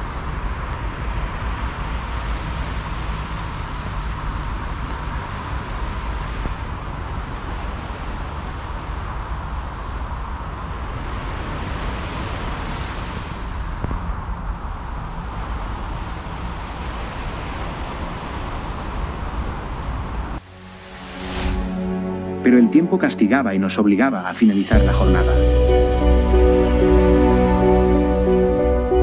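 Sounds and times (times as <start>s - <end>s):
broad rushing noise: 0.0s - 23.0s.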